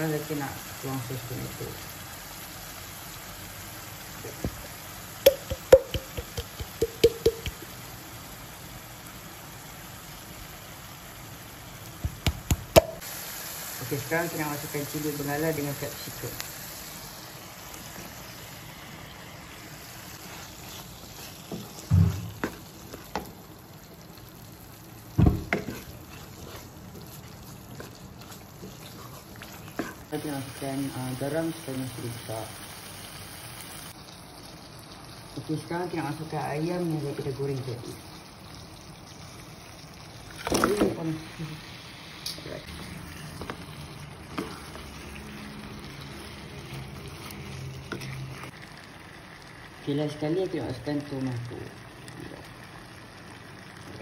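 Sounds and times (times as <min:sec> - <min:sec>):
sauce simmering with hiss: 0:00.0 - 0:54.0
spatula clacking against pan: 0:05.3 - 0:07.6.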